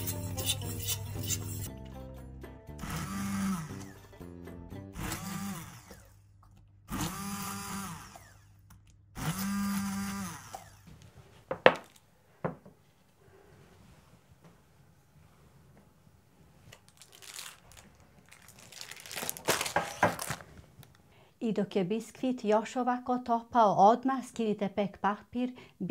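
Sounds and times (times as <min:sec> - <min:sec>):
immersion blender motor whining: 0:02.8 - 0:04.1, 0:05.0 - 0:06.2, 0:06.9 - 0:08.6, 0:09.2 - 0:10.9.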